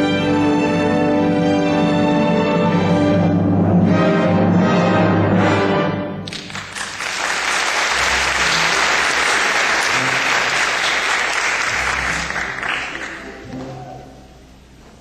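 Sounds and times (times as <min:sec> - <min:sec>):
orchestral ballet music: 0:00.0 - 0:15.0
audience applauding: 0:06.3 - 0:13.5.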